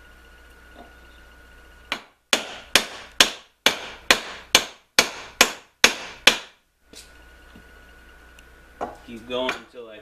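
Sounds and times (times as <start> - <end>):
hammer striking wooden wedge: 1.9 - 6.6.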